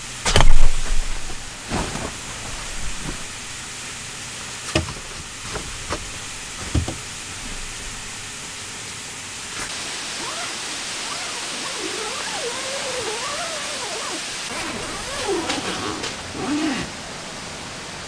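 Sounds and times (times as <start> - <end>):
steady hiss: 0.0 - 18.0
sleeping bag rustling: 0.2 - 8.5, 11.0 - 17.0.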